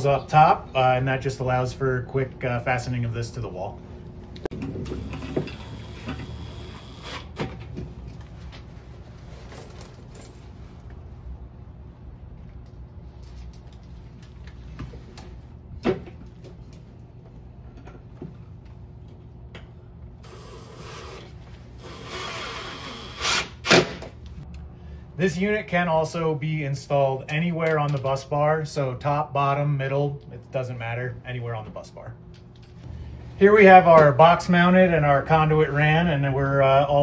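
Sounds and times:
cordless drill driving screws: 4.9s - 7.5s, 20.3s - 23.9s.

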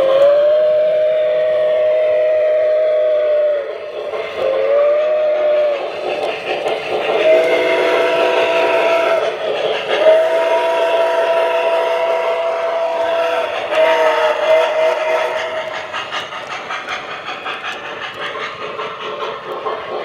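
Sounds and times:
model trains clattering on track: 0.0s - 0.8s, 1.5s - 20.0s
electronic steam whistle blasts: 0.0s - 3.8s, 4.4s - 5.9s, 7.2s - 16.0s.

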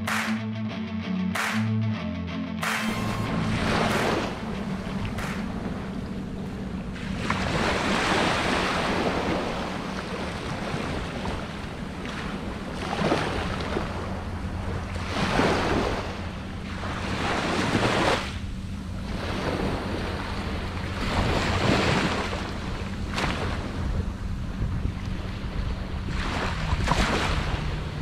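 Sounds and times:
small surf breaking: 3.3s - 5.9s, 6.9s - 14.0s, 26.1s - 27.7s
wind buffeting microphone: 3.6s - 28.0s.

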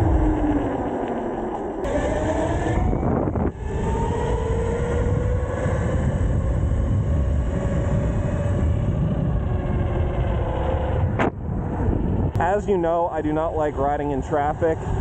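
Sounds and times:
electric motor whine rising: 0.0s - 12.6s
wind rumble on microphone: 0.0s - 15.0s.

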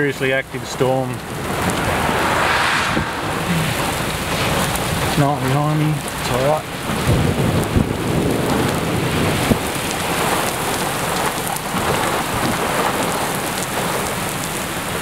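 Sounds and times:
heavy rain pouring: 3.5s - 15.0s.

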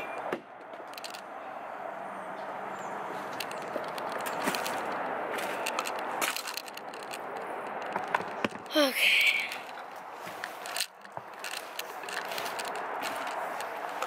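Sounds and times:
outside background noise: 0.0s - 14.0s
camera and clothes rustling: 3.0s - 8.7s, 9.4s - 14.0s.

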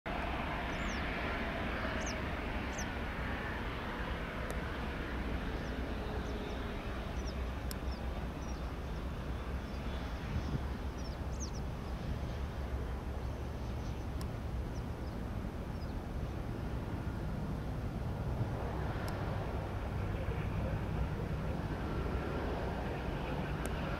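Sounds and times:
jet engines rumbling: 0.1s - 23.9s
small birds chirping: 0.7s - 1.1s, 1.8s - 3.0s, 5.5s - 12.0s, 13.2s - 16.0s.

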